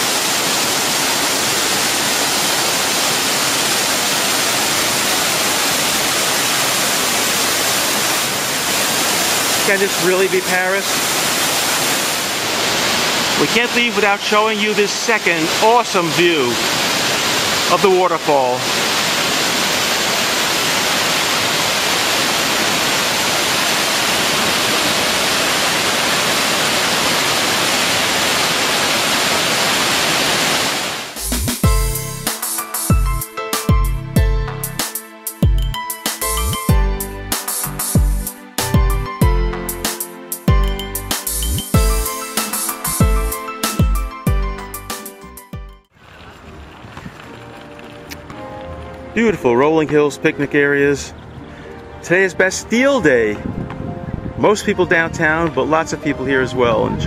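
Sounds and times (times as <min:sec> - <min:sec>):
waterfall splashing into pool: 0:00.0 - 0:31.9.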